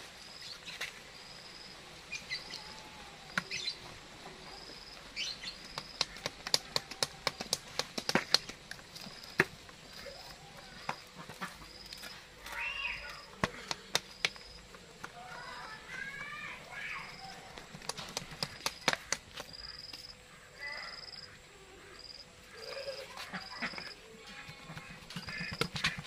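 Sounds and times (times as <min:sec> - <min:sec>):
bird chirping: 0:02.1 - 0:06.2
cardboard fanning slaps: 0:05.6 - 0:09.6, 0:17.3 - 0:20.1.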